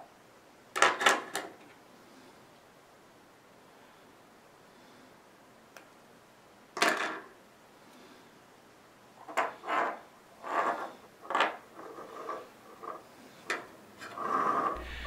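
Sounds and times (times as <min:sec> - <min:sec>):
fishing line rubbing scrapes: 0:09.6 - 0:11.0, 0:14.0 - 0:15.0.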